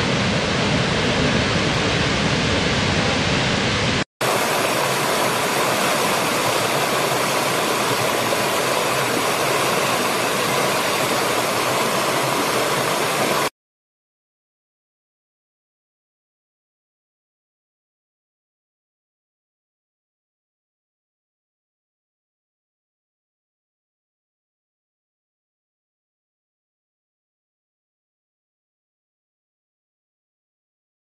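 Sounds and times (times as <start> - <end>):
large waterfall rushing: 0.0 - 13.5
stream rushing over rocks: 4.2 - 13.5.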